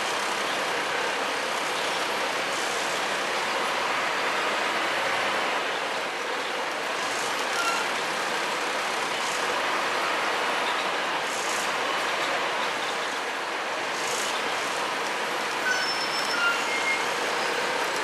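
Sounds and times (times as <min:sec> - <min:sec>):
bus engine and road noise: 0:00.0 - 0:18.0.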